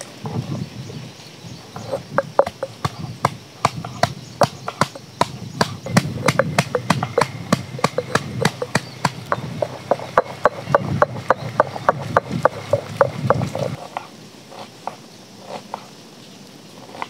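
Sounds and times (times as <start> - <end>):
stone pestle pounding in mortar: 1.8 - 13.8.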